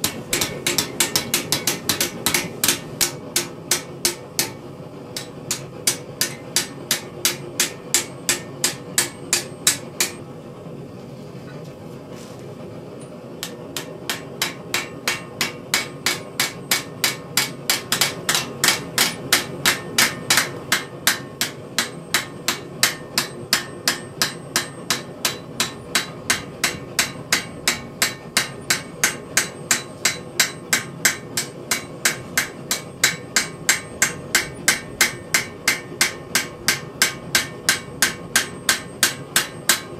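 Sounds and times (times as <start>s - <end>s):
hammer striking steel: 0.0s - 4.6s, 5.2s - 10.2s, 13.4s - 39.9s
steady low hum: 0.0s - 39.9s.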